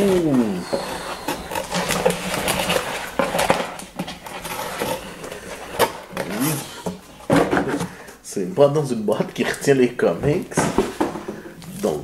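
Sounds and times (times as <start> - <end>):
cardboard and paper rustling: 0.0 - 8.1.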